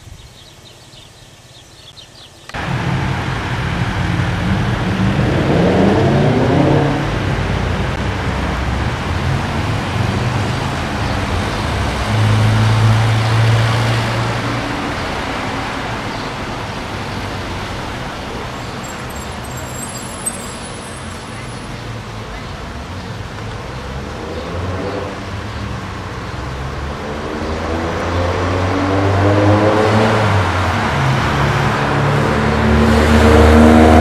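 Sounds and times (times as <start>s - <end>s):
vehicles passing close by: 0.6s - 34.0s
low engine hum: 2.6s - 13.5s
engine speeding up: 2.6s - 15.6s, 26.8s - 34.0s.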